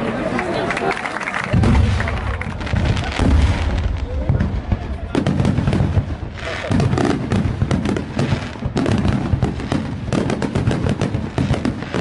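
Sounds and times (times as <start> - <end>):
firework pops and crackles: 1.4 - 12.0
low rumble of booms: 1.6 - 10.0.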